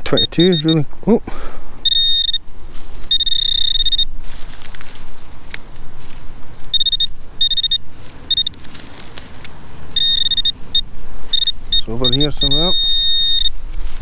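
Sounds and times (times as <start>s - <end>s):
metal detector beeping: 0.0s - 0.9s, 1.8s - 4.3s, 6.6s - 8.7s, 9.9s - 14.0s
soil and straw rustling: 0.0s - 14.0s.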